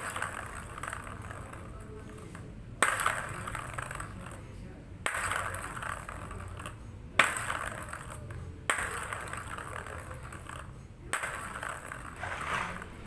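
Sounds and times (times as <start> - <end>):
plastic ball rolling whirr: 0.0 - 13.0.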